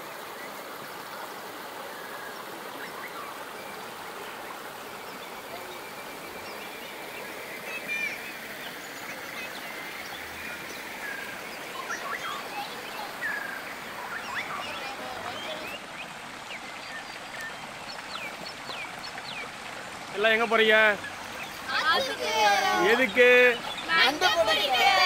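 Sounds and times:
stream rushing over rocks: 0.0 - 25.0
birds chirping and whistling: 10.7 - 19.5.

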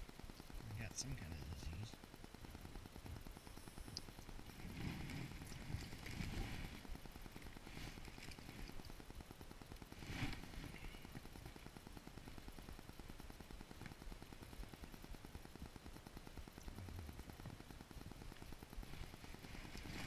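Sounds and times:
low crackling rumble: 0.0 - 20.0
clothing rustling against microphone: 4.5 - 8.9, 9.9 - 10.8, 18.9 - 20.0.

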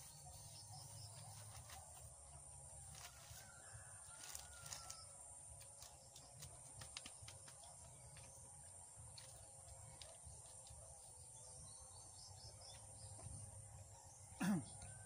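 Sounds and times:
faint rooster crowing: 3.0 - 5.4.

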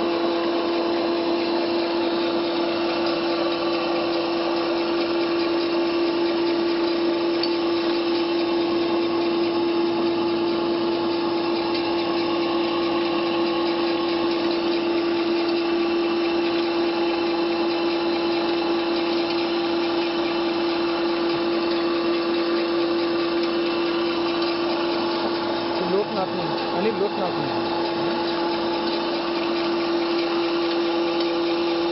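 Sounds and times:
pellet mill humming: 0.0 - 31.9.

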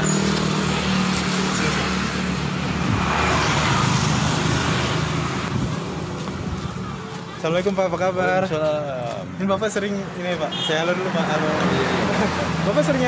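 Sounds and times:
broad rushing noise: 0.0 - 7.9
vehicle engine humming: 0.0 - 13.0.

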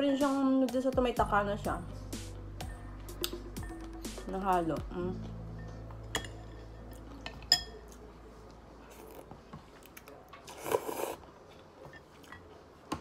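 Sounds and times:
utensil clinking glass bowl: 5.6 - 8.0
noodles slurped: 10.5 - 11.3.

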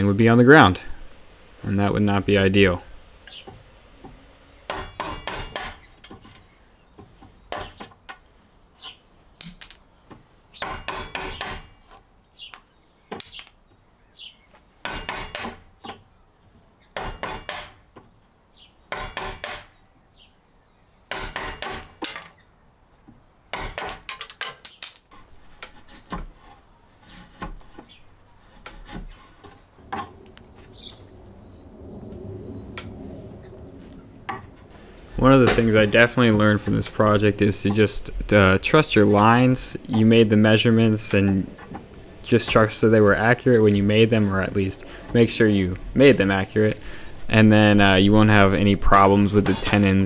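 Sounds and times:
chisel scraping wood: 25.1 - 30.1.

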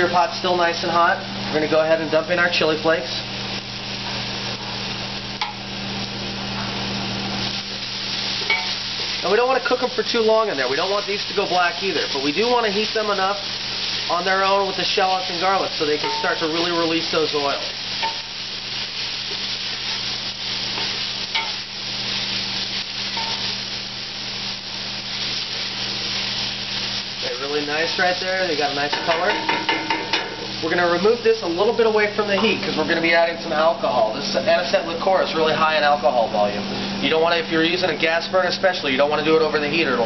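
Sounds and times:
frying sizzle in hot oil: 0.0 - 40.0.

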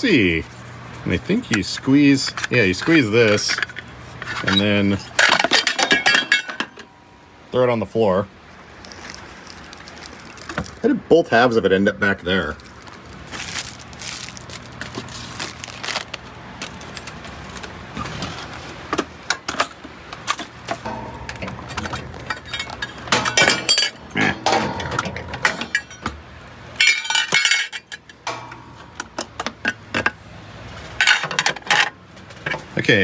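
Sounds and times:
steady low hum: 0.0 - 31.2.

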